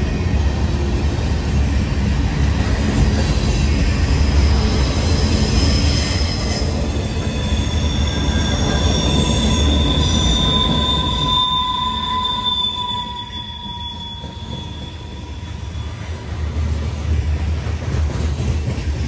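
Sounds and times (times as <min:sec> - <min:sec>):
train cars rumbling on rails: 0:00.0 - 0:19.0
high-pitched wheel squeal: 0:04.1 - 0:16.3.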